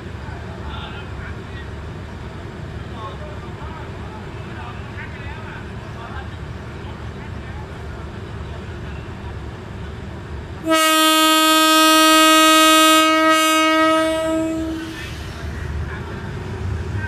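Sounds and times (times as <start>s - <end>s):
locomotive horn blast: 10.6s - 15.2s.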